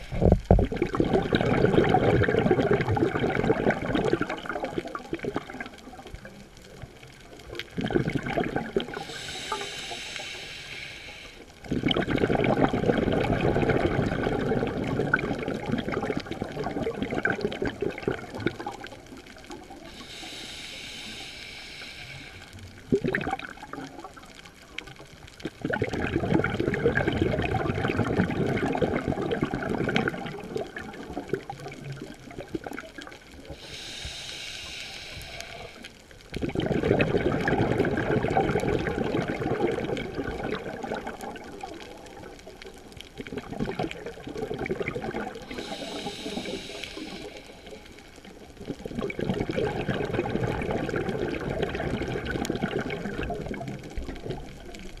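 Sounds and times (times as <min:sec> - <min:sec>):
exhaled breath bubbling underwater: 0:00.0 - 0:06.0, 0:07.6 - 0:24.4, 0:25.3 - 0:55.0
regulator inhalation hiss: 0:09.0 - 0:11.5, 0:19.9 - 0:22.6, 0:33.5 - 0:35.9, 0:45.4 - 0:48.0.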